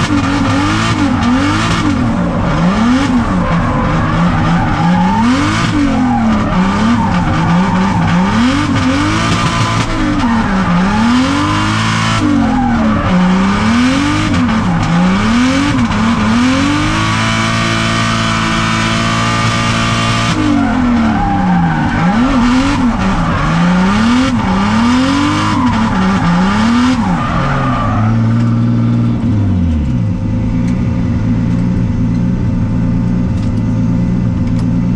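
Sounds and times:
car engine revving: 0.0s - 34.9s
tyres screeching: 0.2s - 18.3s, 19.0s - 28.6s.

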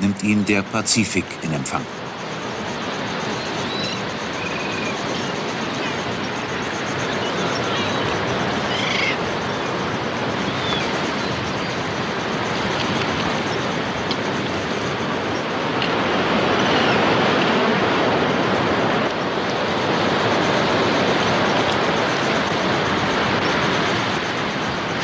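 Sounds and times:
bird calls: 3.3s - 9.2s, 10.4s - 11.8s.

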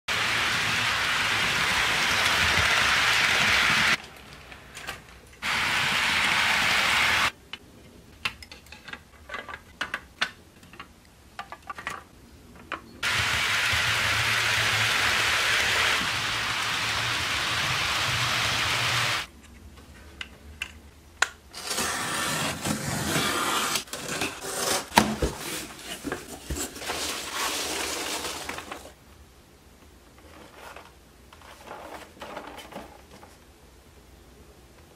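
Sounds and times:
model train whirring: 0.1s - 4.0s, 5.4s - 7.3s, 13.0s - 19.3s.

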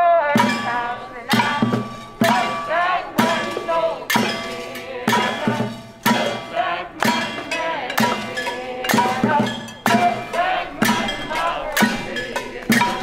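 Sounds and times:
crowd singing: 0.0s - 13.0s
strikes on pots and pan lids: 0.4s - 13.0s.

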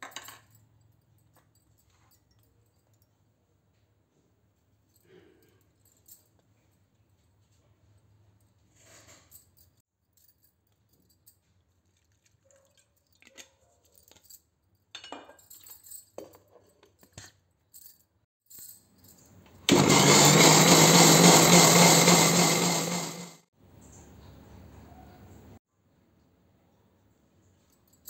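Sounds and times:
mixer grinder running: 19.7s - 23.5s.

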